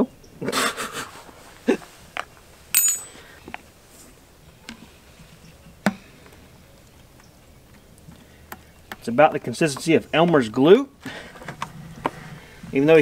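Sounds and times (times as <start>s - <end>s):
metal clinking on gravel: 2.7s - 3.3s.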